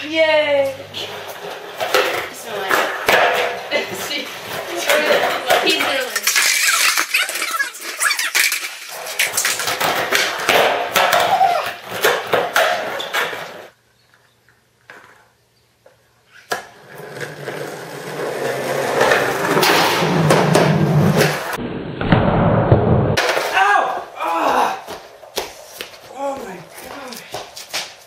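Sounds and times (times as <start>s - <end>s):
skateboard wheels rolling on concrete: 0.0s - 28.0s
skateboard clacks: 1.0s - 13.8s, 16.5s - 21.6s.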